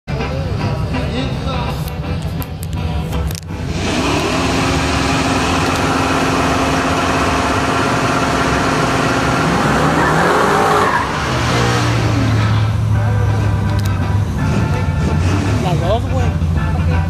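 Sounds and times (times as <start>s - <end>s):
truck engine at high revs: 3.2s - 16.6s.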